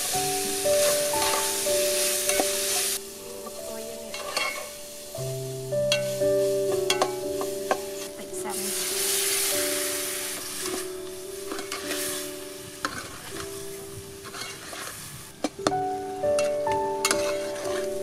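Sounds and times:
light background music: 0.0 - 18.0
liquid sizzling in hot pot: 0.0 - 18.0
metal ladle stirring: 4.1 - 4.8, 5.9 - 7.8, 11.5 - 12.2, 12.8 - 13.6, 14.2 - 18.0.

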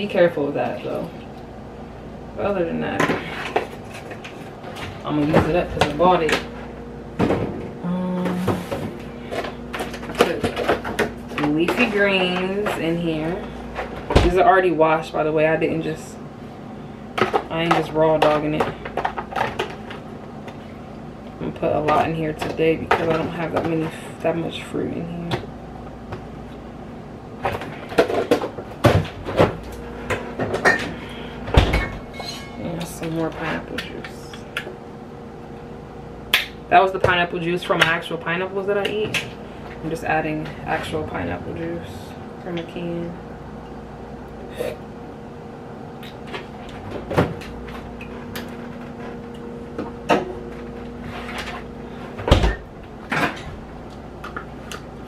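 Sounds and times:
items handled in refrigerator: 2.4 - 16.0.

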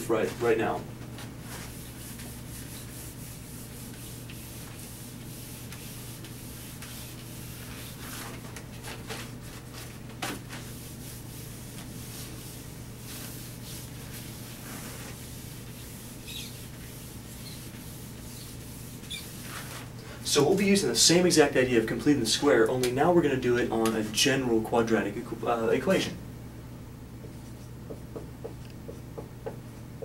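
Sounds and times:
eraser rubbing whiteboard: 1.4 - 8.4, 10.5 - 19.9.

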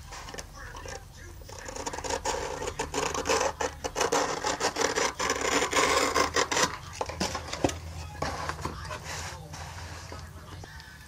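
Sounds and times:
pen rubbing on foam board: 0.0 - 7.6.

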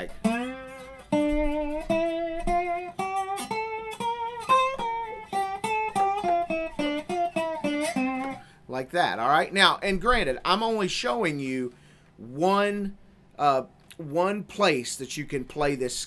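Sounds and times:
slide guitar playing scale: 0.0 - 11.1.

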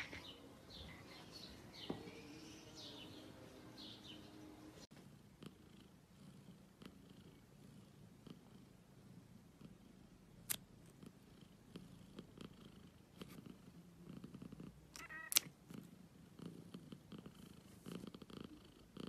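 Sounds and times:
cat purring: 4.9 - 15.0, 15.6 - 19.0.

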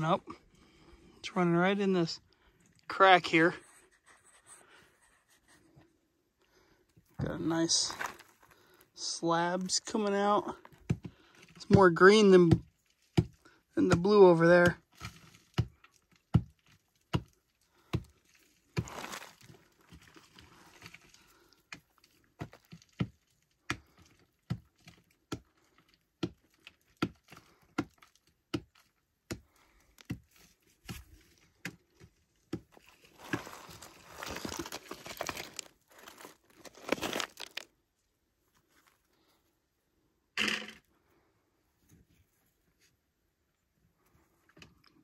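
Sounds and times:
scraping and crumbling of clay: 7.0 - 8.9, 9.6 - 37.8
rocks clicking and knocking: 7.0 - 37.8
rocks rattling: 7.2 - 8.7, 32.7 - 37.7.

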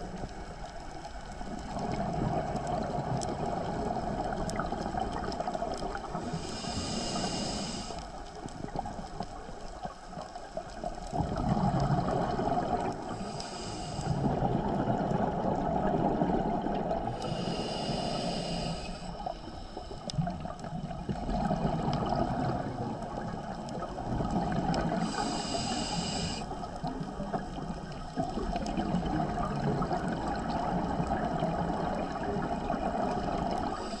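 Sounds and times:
exhaled bubbles rushing and gurgling: 0.0 - 34.0
hissing regulator inhale: 6.1 - 8.3, 13.0 - 14.5, 17.0 - 20.4, 24.8 - 26.7, 33.4 - 34.0.

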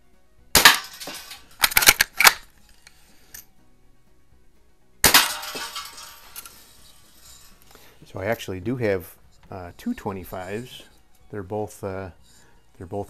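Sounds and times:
bb gun shots: 0.6 - 2.4, 5.0 - 6.0.

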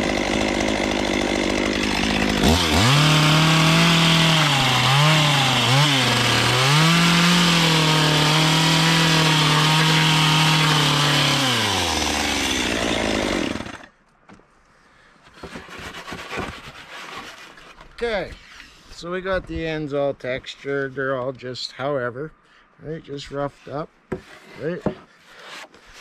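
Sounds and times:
chainsaw cutting wood: 0.0 - 14.0.

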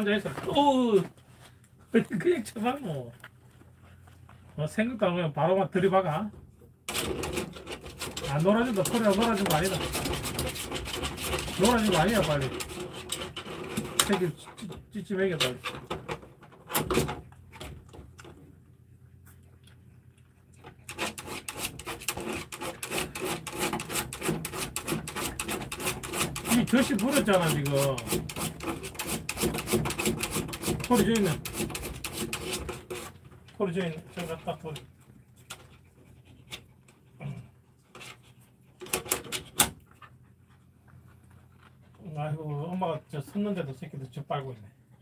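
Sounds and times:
dog claws scraping plastic panel: 6.9 - 14.7, 20.6 - 34.9, 37.9 - 39.8.

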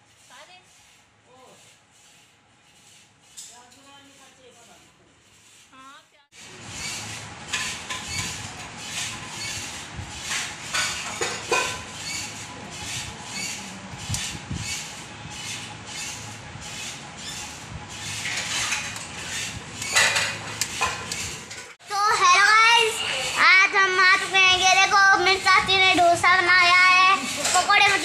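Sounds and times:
knife sawing through sandwich: 0.0 - 5.8, 6.4 - 21.4.

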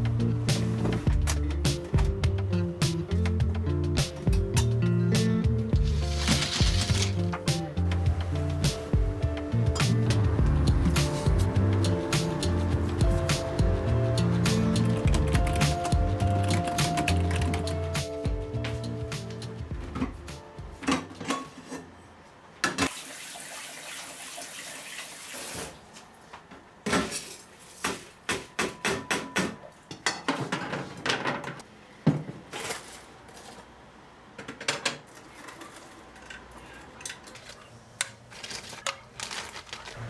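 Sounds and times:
dishes and utensils clinking: 20.8 - 21.9
kitchen tap running: 22.9 - 25.7.

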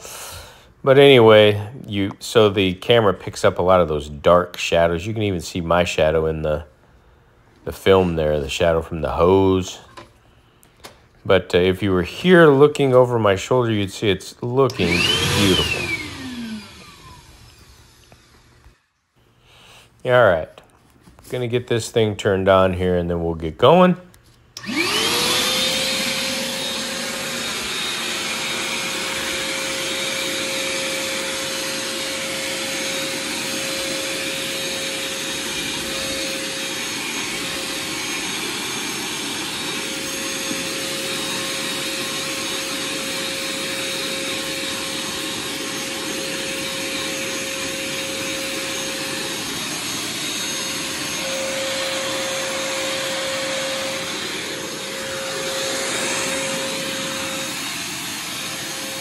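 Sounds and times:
shop vacuum running: 7.6 - 10.1, 10.8 - 19.8, 24.6 - 59.0.

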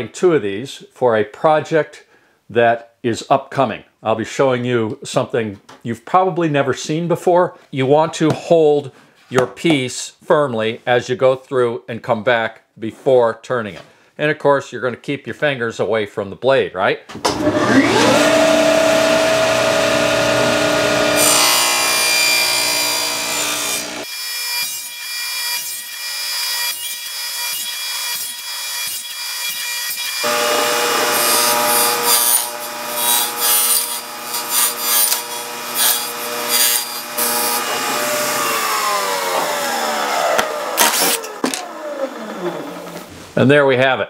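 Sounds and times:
table saw cutting plastic: 17.3 - 43.1
saw blade winding down: 17.4 - 24.1, 24.7 - 43.1.

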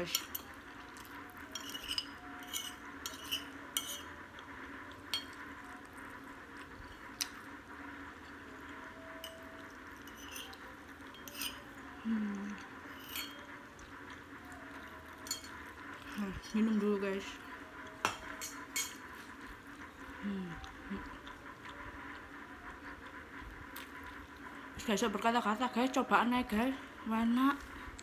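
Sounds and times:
faint steady hum: 0.0 - 28.0
metal spoon scraping ceramic plate: 1.5 - 4.2, 10.0 - 11.8, 12.9 - 13.5.

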